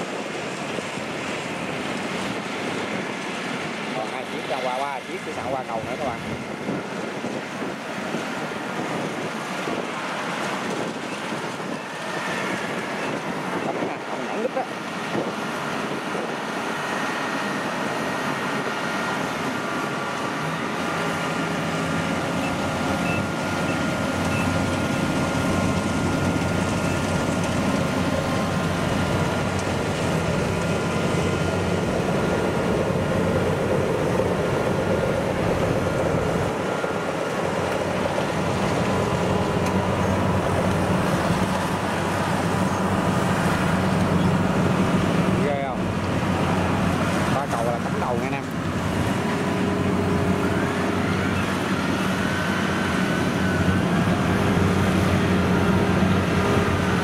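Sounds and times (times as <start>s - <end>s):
combine harvester engines droning: 0.0s - 57.0s
steady whine: 9.7s - 57.0s.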